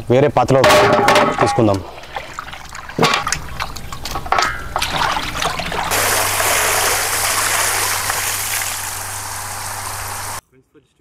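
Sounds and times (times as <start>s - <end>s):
bones knocking on metal pot: 0.5s - 5.1s
water pouring and splashing: 1.1s - 10.4s.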